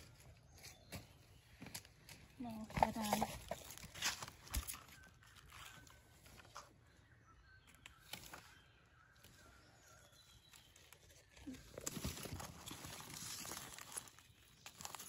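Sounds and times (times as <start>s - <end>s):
dry leaves rustling and crackling: 10.4s - 15.0s.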